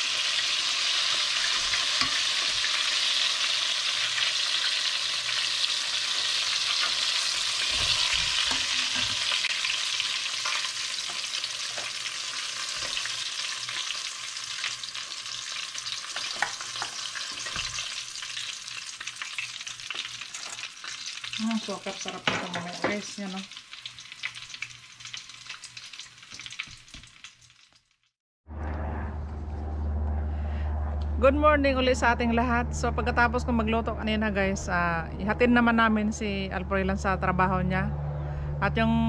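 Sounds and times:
hot oil sizzling: 0.0s - 28.1s.

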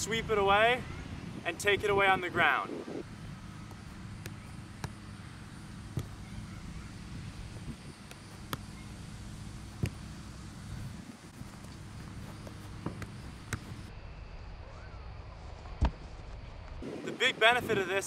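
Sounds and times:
ball taps on grass: 5.9s - 6.2s, 8.0s - 8.8s, 9.7s - 10.1s, 12.4s - 13.8s.

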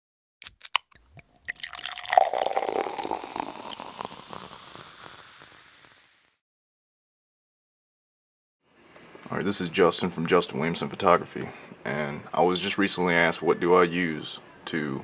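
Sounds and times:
water dripping and splashing: 1.2s - 4.6s.

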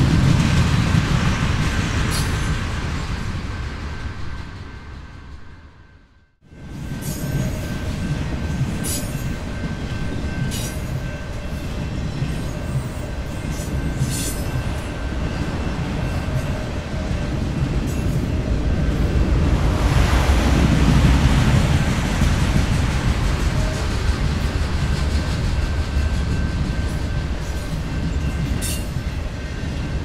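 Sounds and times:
train rumbling on rails: 0.0s - 30.0s.

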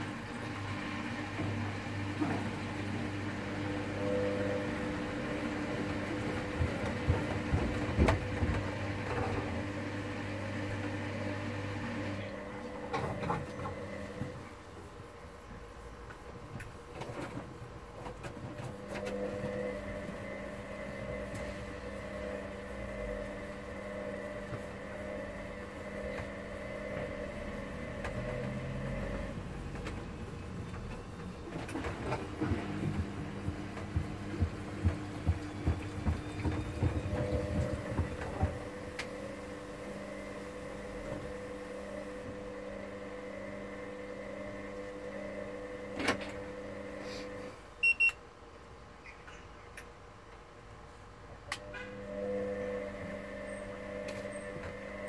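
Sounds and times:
washing machine motor humming: 0.0s - 48.1s, 51.6s - 55.0s
laundry sloshing and knocking: 4.6s - 11.0s, 23.5s - 38.9s.

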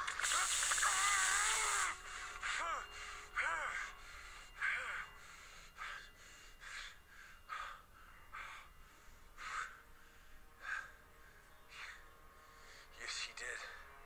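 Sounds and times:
man breathing heavily: 1.6s - 12.9s.

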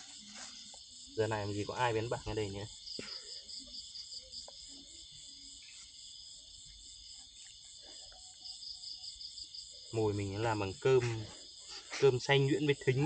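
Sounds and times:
crickets trilling: 0.0s - 13.0s.

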